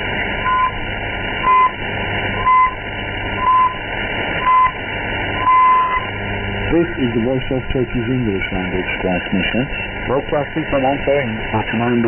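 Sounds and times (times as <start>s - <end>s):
radio hiss: 0.0s - 12.0s
short high time-signal beeps: 5.4s - 6.0s.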